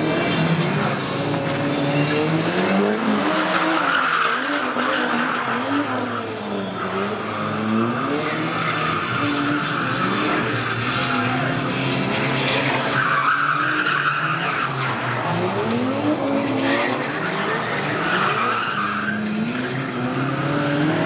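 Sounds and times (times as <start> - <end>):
car engine revving: 0.0 - 21.0
tyres squealing on concrete: 0.5 - 21.0.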